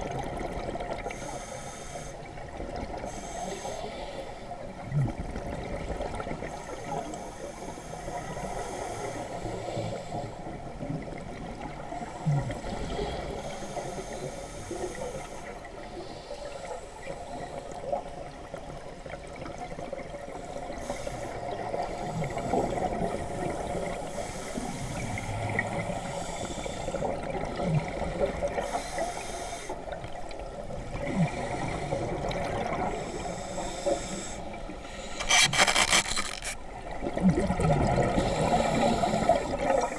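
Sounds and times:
scuba regulator hiss: 1.2s - 2.2s, 3.1s - 4.2s, 28.6s - 29.8s, 33.0s - 36.6s
exhaled bubbles rushing: 37.0s - 38.2s.

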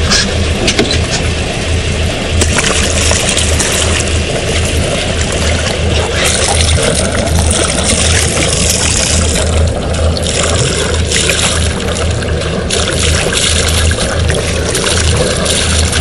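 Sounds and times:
steady low rumble: 0.0s - 16.0s
water splashing against boat: 0.0s - 16.0s.

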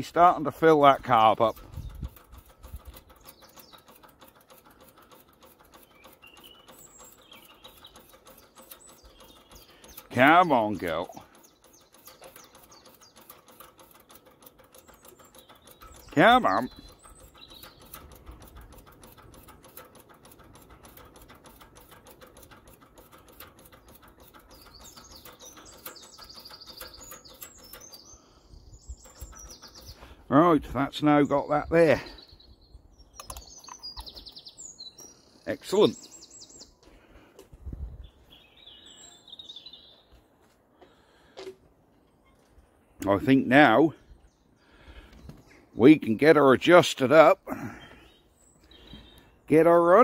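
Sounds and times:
fuel pump clicking: 0.0s - 30.7s, 33.1s - 37.6s
small bird chirping: 0.0s - 36.8s, 37.8s - 41.1s, 47.8s - 50.0s.

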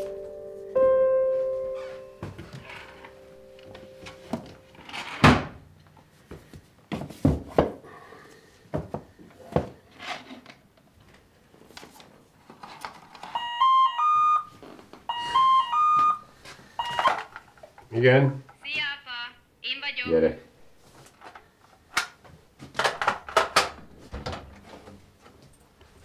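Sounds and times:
door intercom chime melody: 0.0s - 5.0s, 13.3s - 17.2s
objects thunking on wooden shelf: 4.3s - 5.6s, 6.9s - 7.8s, 22.0s - 25.0s.

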